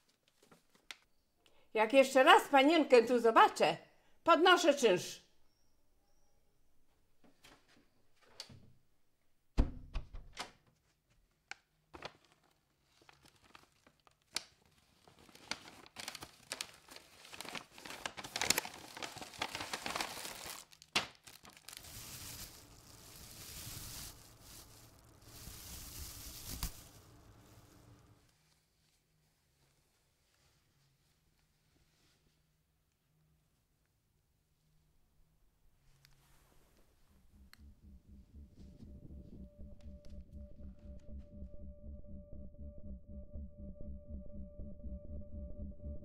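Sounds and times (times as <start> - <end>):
door shutting with a thump: 9.6 - 10.5
packaging crinkling and tearing: 12.0 - 27.9.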